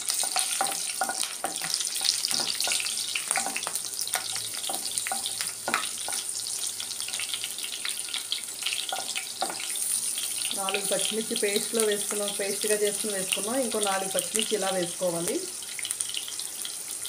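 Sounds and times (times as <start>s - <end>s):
chillies sizzling in hot oil: 0.0s - 17.0s
spatula knocking against pan: 0.2s - 6.3s, 8.9s - 9.6s.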